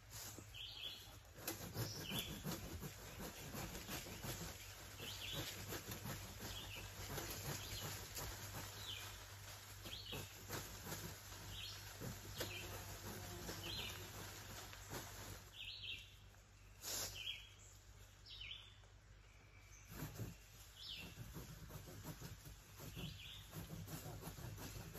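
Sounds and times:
rustling and scraping on ground: 0.0s - 18.1s, 19.7s - 24.9s
songbird chirping: 11.4s - 21.3s.

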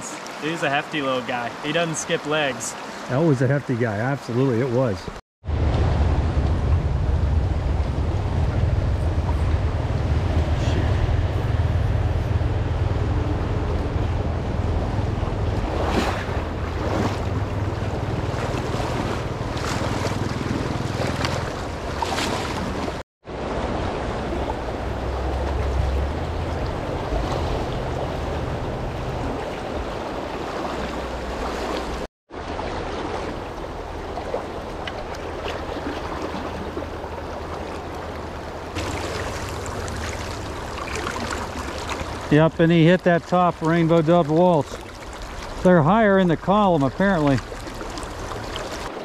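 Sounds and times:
river water rushing: 0.0s - 3.4s, 9.3s - 49.0s
wind rumbling on microphone: 5.4s - 42.4s.

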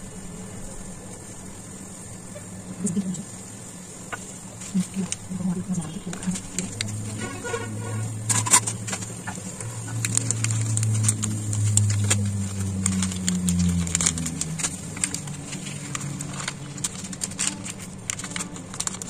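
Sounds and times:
low steady hum: 0.0s - 19.0s
kitchen items clicking: 4.7s - 19.0s.

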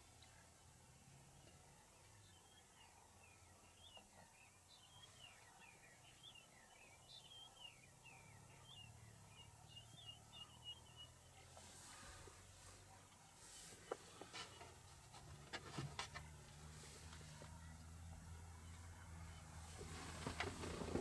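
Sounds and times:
birds chirping: 0.0s - 21.0s
brief rustle: 19.6s - 21.0s.

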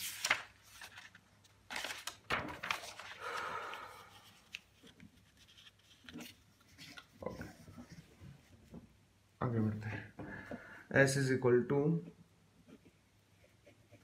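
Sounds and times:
paper rustling and sliding: 0.0s - 8.0s.

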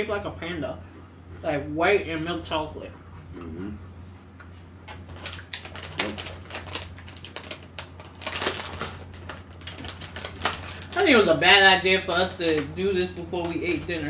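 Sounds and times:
plastic snack wrapper crinkling: 5.0s - 11.4s, 12.0s - 14.0s.

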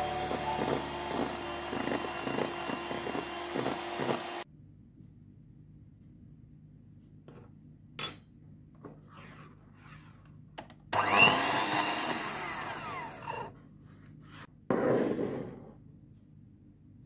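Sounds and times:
electric hand mixer running: 0.0s - 4.4s, 11.0s - 13.5s.

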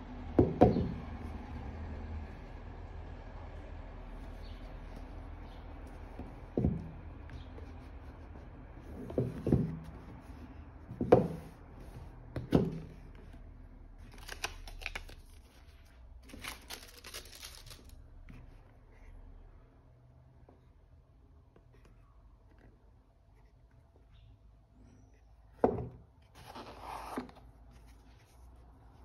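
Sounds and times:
papery rustling and scraping: 14.1s - 18.0s.

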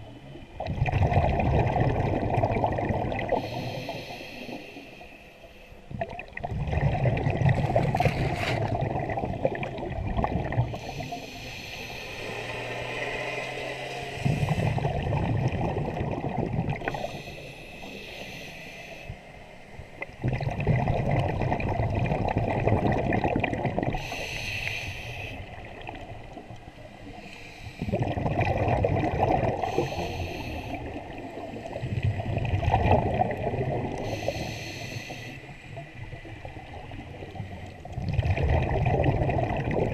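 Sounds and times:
gurgling exhaled bubbles: 0.0s - 4.6s, 5.9s - 18.0s, 20.0s - 35.0s, 35.7s - 39.9s
regulator inhalation hiss: 3.4s - 5.8s, 10.8s - 12.4s, 16.9s - 19.2s, 24.0s - 25.5s, 29.6s - 30.9s, 34.0s - 35.7s.

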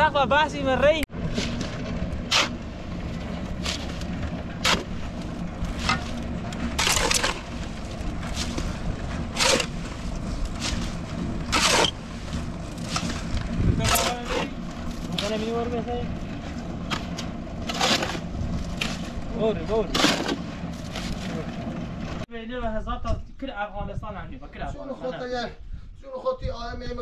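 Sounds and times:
low rumble: 1.0s - 23.1s
shovel scraping in wheelbarrow: 1.2s - 22.2s.

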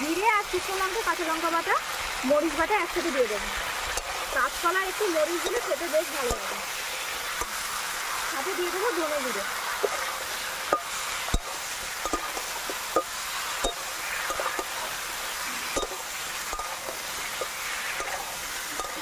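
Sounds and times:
food sizzling in oil: 0.0s - 19.0s
spatula scraping and knocking pan: 9.8s - 19.0s.

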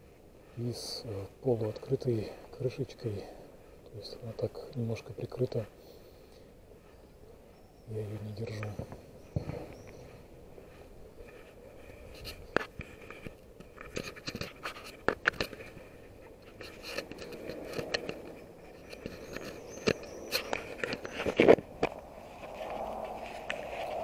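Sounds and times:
faint outdoor background: 0.0s - 24.0s
camera scratching in frame: 11.2s - 24.0s.

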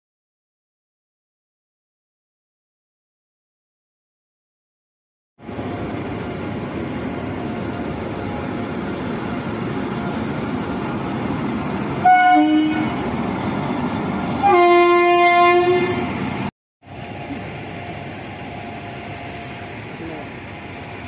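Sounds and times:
train wheels rumbling on rail: 5.4s - 21.0s
train horn blast: 12.0s - 13.0s, 14.4s - 16.2s.

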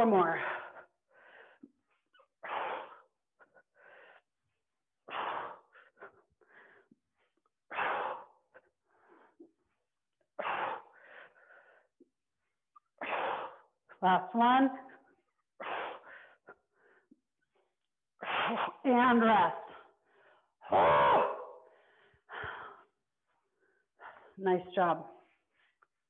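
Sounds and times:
woman breathing forcefully: 0.3s - 9.6s, 10.3s - 12.0s, 12.9s - 14.0s, 15.6s - 17.2s, 21.6s - 24.4s.

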